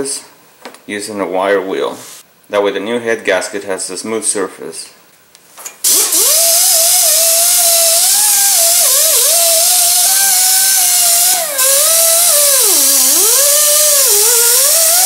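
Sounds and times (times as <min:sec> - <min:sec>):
pneumatic grinder whining: 0:05.9 - 0:15.0.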